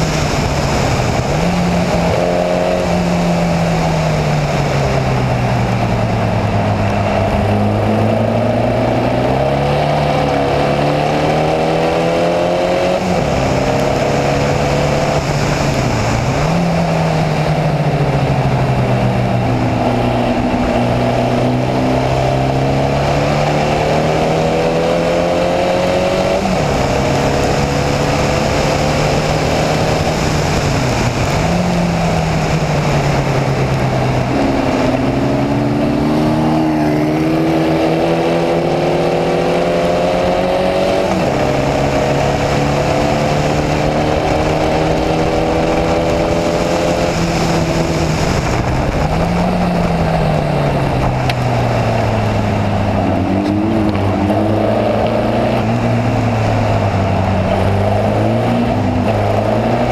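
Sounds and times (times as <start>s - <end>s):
racing car engine through gears: 0.0s - 59.9s
wind rushing: 0.0s - 59.9s
wet track spray: 40.9s - 54.5s.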